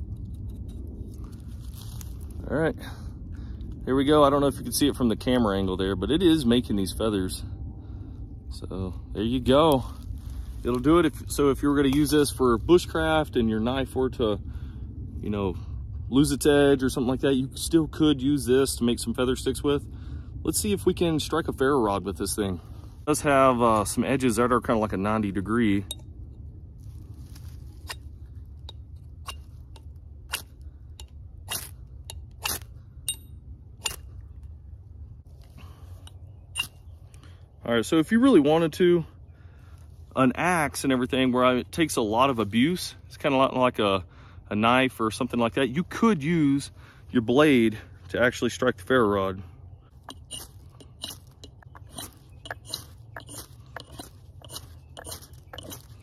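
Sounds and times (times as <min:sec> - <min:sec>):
ferro rod scraping steel: 0:27.3 - 0:34.1, 0:36.0 - 0:36.8, 0:50.0 - 0:56.0.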